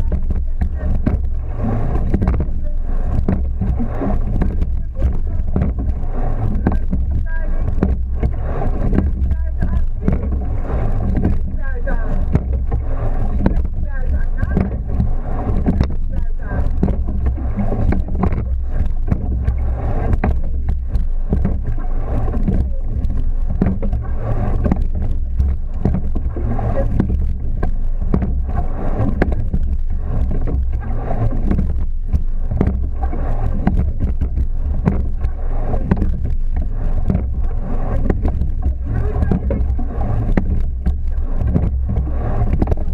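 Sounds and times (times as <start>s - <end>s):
oars and rigging clicking: 0.0s - 42.9s
water rushing along hull: 0.0s - 42.9s
wind buffeting microphone: 0.0s - 42.9s.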